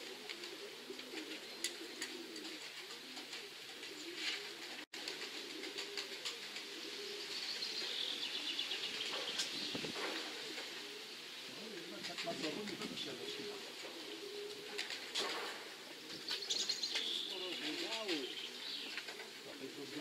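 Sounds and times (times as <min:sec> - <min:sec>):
pigeons cooing: 0:00.0 - 0:20.0
small bird chirping rapidly: 0:16.3 - 0:17.7.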